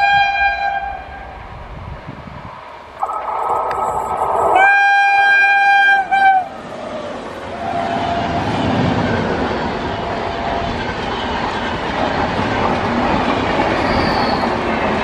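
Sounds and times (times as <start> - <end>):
locomotive horn blasts: 0.0 - 1.4, 4.6 - 6.6
train wheels rumbling on rails: 0.0 - 15.0.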